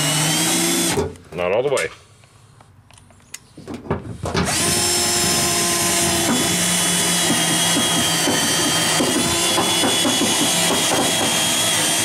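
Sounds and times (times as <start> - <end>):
cordless drill motor whine: 4.5 - 12.0.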